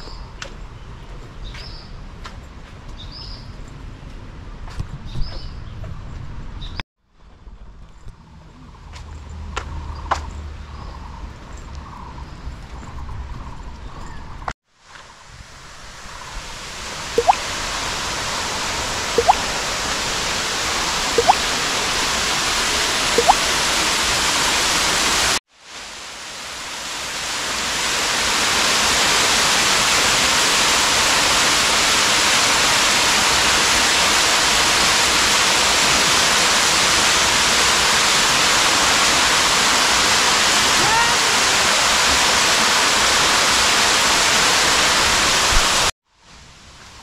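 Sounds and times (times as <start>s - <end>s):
waterfall rushing: 15.1s - 45.9s.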